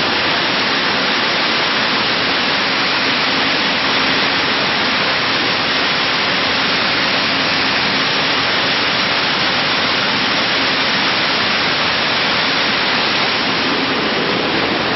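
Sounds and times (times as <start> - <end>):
machinery rushing noise: 0.0 - 14.9.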